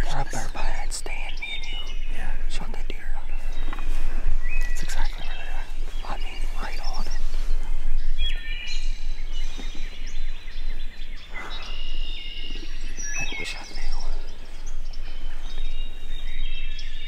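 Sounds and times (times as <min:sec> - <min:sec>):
songbirds singing: 0:00.0 - 0:17.0
rustling: 0:02.4 - 0:17.0.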